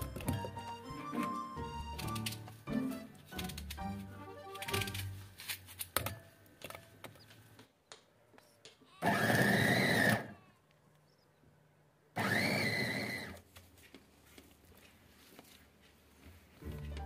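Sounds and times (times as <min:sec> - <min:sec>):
food chopper motor whine: 0:09.0 - 0:10.3, 0:12.2 - 0:13.4.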